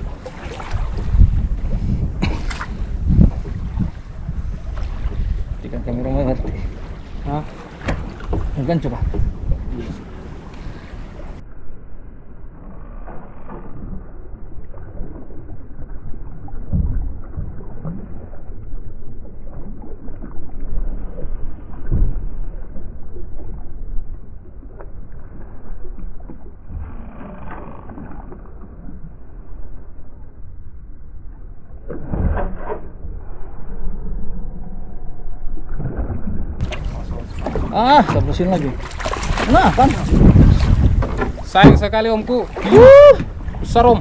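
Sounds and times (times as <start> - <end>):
sea noise: 0.0 - 44.0
wind: 0.0 - 44.0
dull knocks against boat: 7.7 - 9.4, 38.9 - 43.3.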